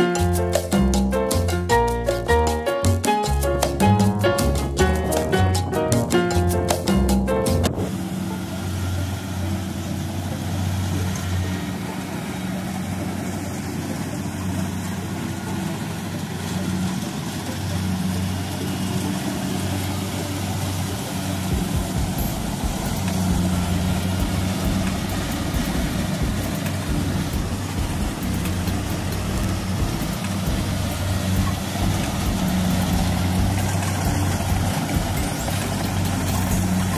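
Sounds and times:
diesel engine hum: 0.0s - 36.9s
low buffeting: 0.7s - 36.9s
cutting and threshing machinery: 7.5s - 36.9s.

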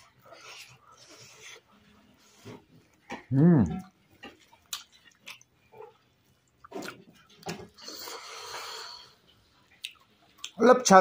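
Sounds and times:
wet chewing and lip-smacking: 2.8s - 10.6s
noisy breath: 7.8s - 9.3s.

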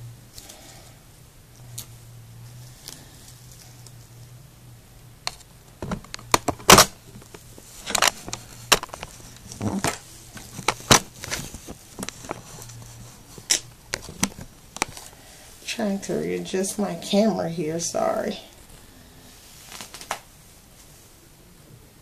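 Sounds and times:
faint low hum: 0.0s - 22.0s
rubbing rustles: 7.1s - 16.0s, 18.6s - 21.1s.

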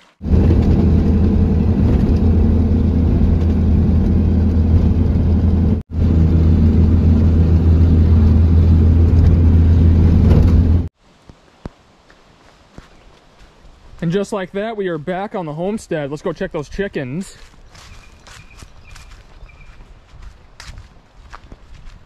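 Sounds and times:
truck engine and road drone: 0.0s - 10.9s.

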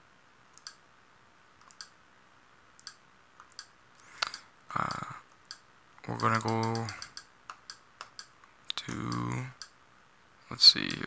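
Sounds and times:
key presses clicking: 6.1s - 8.3s.

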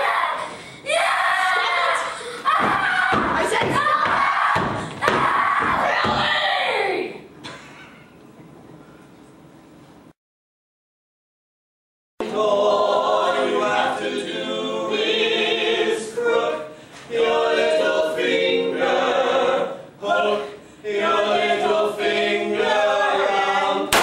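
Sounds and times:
men and women singing together: 12.2s - 24.0s.

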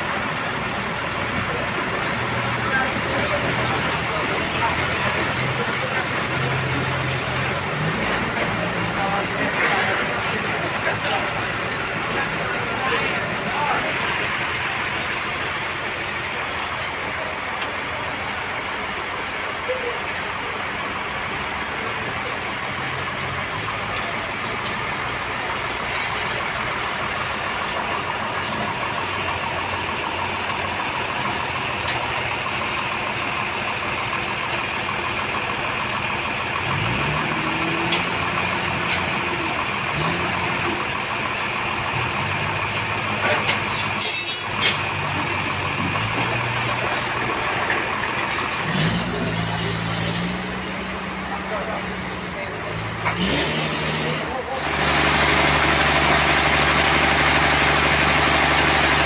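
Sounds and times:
forklift engine idling and revving: 0.0s - 59.0s.

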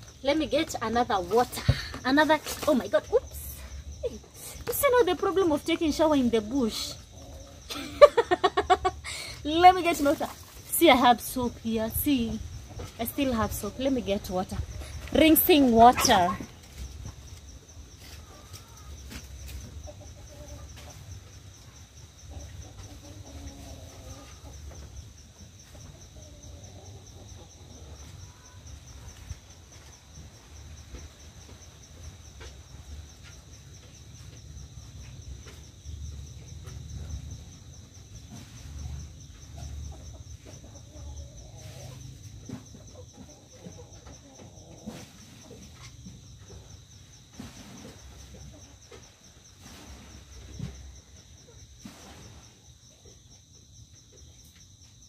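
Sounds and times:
hens clucking: 4.5s - 10.7s, 14.6s - 17.3s, 18.0s - 21.3s, 22.2s - 28.5s, 39.9s - 46.2s.

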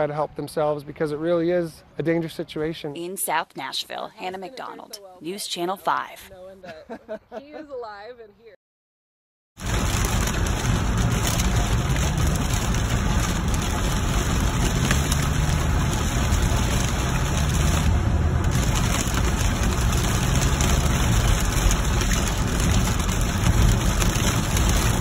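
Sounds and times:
heavy rain on car windshield: 9.6s - 25.0s
tyres rumbling on wet road: 9.6s - 25.0s.

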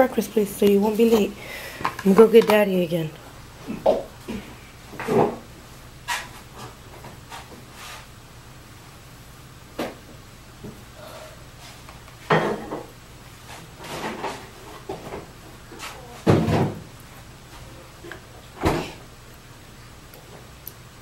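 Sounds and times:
steady low hum: 0.0s - 21.0s
knocks and thumps in a room: 13.8s - 17.0s.

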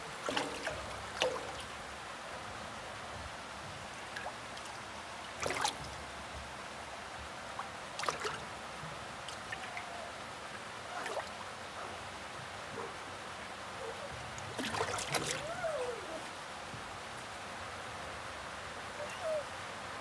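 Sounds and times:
fish splashing: 0.0s - 1.7s, 5.4s - 5.9s, 14.6s - 15.5s.

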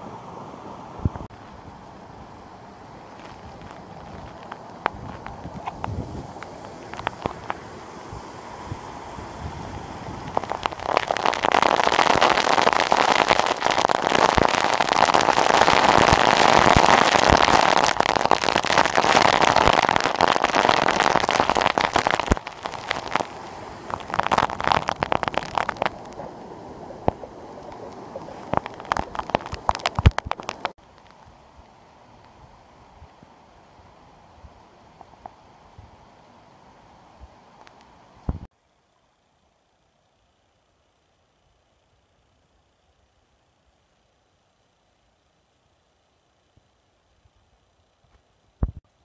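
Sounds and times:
spray pattering: 3.1s - 30.8s
waterfall crashing onto rocks: 3.6s - 30.8s.

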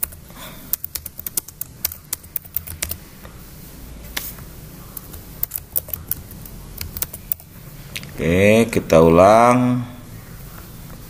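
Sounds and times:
computer keyboard typing: 0.0s - 3.0s, 4.9s - 7.5s.

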